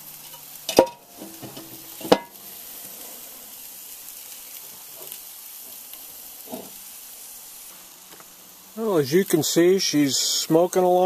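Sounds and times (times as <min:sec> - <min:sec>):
meat sizzling: 0:00.0 - 0:11.0
cast-iron lid clanking: 0:00.3 - 0:02.4.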